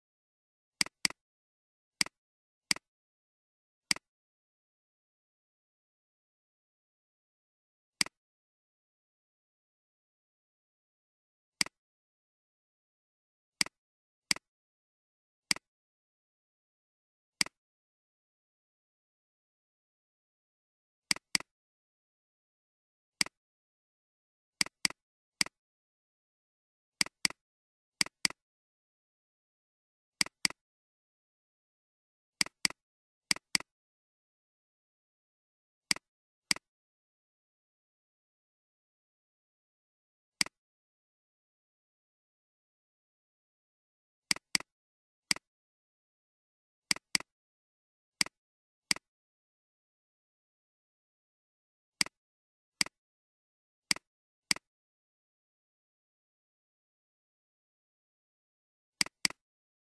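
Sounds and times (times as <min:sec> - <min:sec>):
computer mouse clicks: 0:00.8 - 0:01.2, 0:21.1 - 0:21.5, 0:24.6 - 0:25.6, 0:27.0 - 0:27.4, 0:28.0 - 0:28.4, 0:30.2 - 0:30.6, 0:32.4 - 0:33.7, 0:53.9 - 0:54.7, 0:59.0 - 0:59.4.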